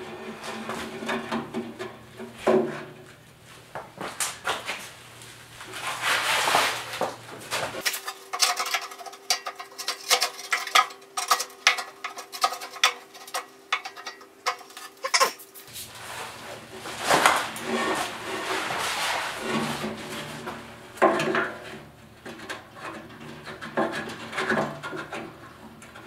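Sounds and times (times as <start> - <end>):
metal clinking and scraping: 7.8 - 25.4.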